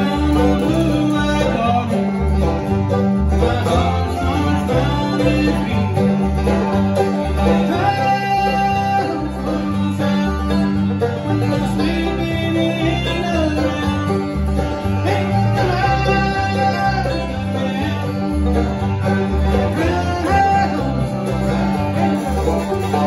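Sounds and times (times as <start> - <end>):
banjo picking: 0.0 - 23.0
bluegrass band playing: 0.0 - 23.0
strummed acoustic guitars: 0.0 - 23.0.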